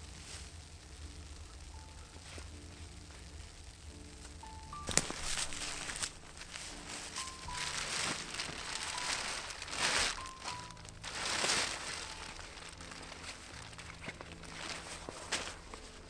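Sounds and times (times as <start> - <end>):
background music with held notes: 0.0 - 16.0
rucksack and tarp rustling: 4.8 - 16.0.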